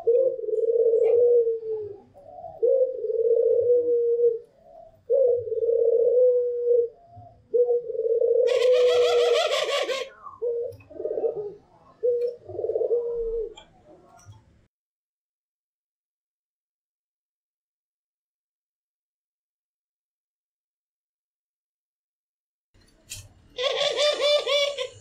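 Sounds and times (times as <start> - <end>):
doves cooing: 0.0 - 14.3, 23.6 - 25.0.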